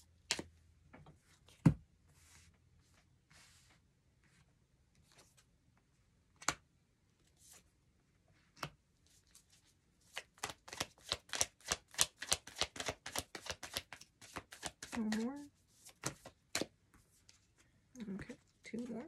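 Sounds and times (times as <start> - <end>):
cards slapping while shuffled: 0.2 - 0.5, 10.1 - 16.8.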